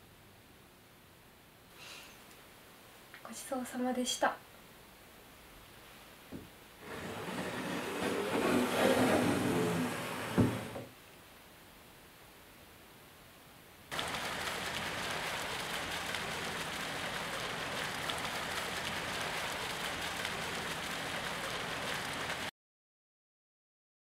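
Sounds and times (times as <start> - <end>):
loud hiss with crackle: 6.8 - 12.0, 13.9 - 22.5.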